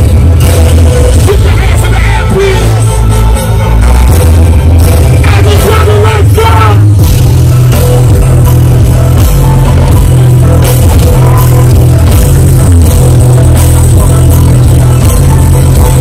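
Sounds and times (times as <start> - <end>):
heavy bass beat: 0.0 - 16.0
live concert music: 0.0 - 16.0.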